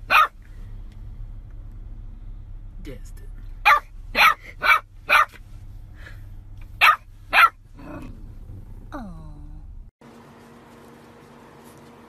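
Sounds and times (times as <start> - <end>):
puppy barking: 0.0 - 0.4, 3.6 - 5.4, 6.8 - 8.1.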